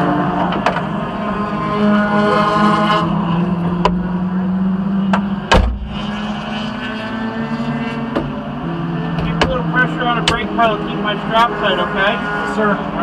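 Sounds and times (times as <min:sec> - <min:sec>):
loud thump: 0:05.5 - 0:06.0.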